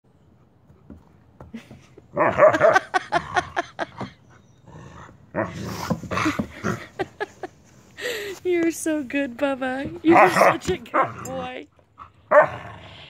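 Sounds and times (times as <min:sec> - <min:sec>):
dog growling and grumbling: 0:04.6 - 0:07.2, 0:09.9 - 0:13.0.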